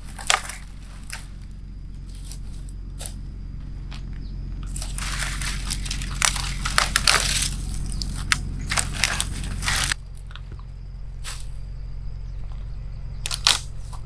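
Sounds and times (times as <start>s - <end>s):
dry twigs snapping: 0.0s - 3.2s, 3.9s - 10.6s, 13.2s - 14.0s.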